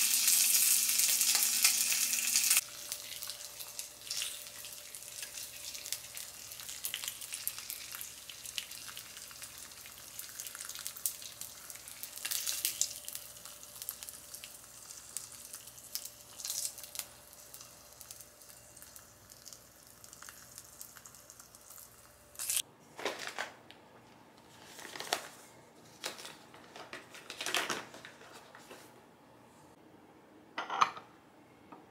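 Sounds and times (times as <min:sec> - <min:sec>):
food sizzling in oil: 0:00.0 - 0:22.6
kitchen handling noises: 0:30.6 - 0:31.1.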